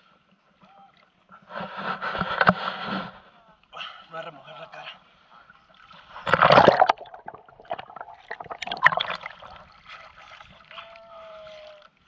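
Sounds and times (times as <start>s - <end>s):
water splashing: 5.7s - 11.8s.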